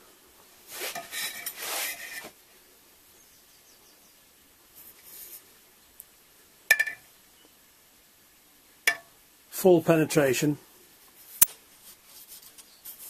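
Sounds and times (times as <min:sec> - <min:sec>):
handling rubbing scuffle: 0:00.7 - 0:02.4.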